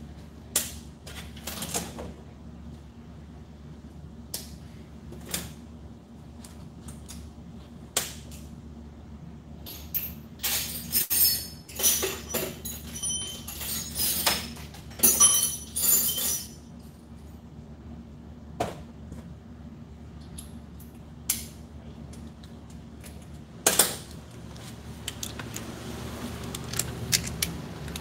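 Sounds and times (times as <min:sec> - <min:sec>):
metal tools clattering: 0:09.7 - 0:16.6.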